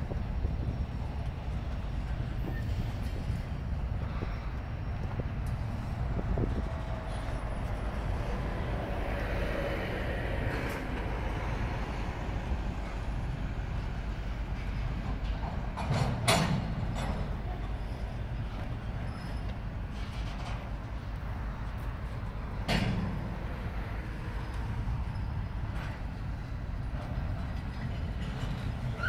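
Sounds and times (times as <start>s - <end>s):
train wheels rumbling on rails: 0.0s - 29.0s
faint wheel squeal: 2.4s - 3.4s, 17.4s - 20.2s, 25.0s - 25.6s, 28.5s - 29.0s.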